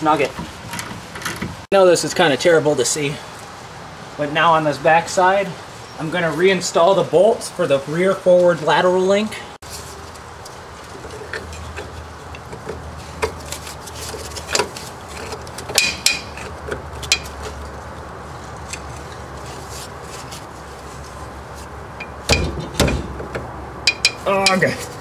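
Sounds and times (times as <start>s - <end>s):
metallic clicks and knocks: 14.4s - 17.8s, 22.0s - 24.7s.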